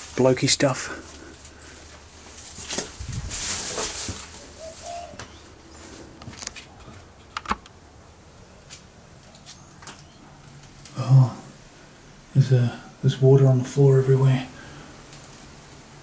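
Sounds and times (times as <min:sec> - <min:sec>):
footsteps: 0:00.0 - 0:07.2
rustling: 0:00.0 - 0:07.6
pigeon cooing: 0:03.7 - 0:06.2.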